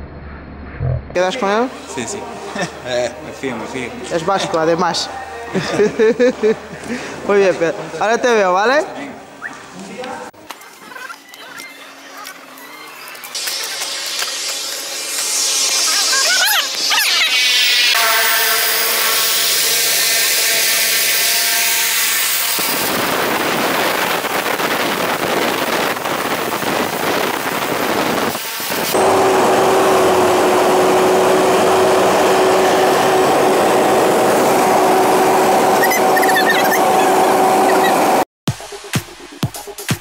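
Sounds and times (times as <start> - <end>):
cabin engine drone: 28.7 - 38.3
propeller plane engine running: 28.9 - 38.2.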